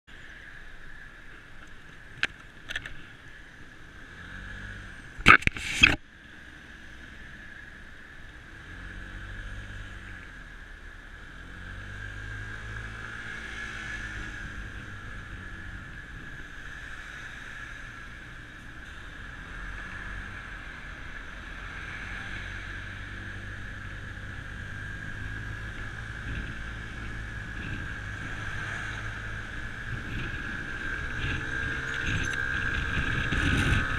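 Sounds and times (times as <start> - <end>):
road and wind noise: 0.0 - 33.9
scooter engine running: 12.2 - 33.9.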